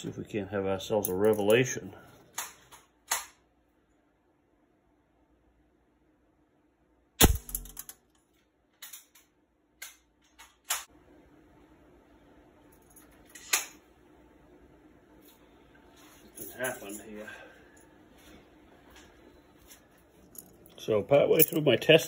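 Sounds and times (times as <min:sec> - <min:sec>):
air rifle firing: 0:07.2 - 0:07.9.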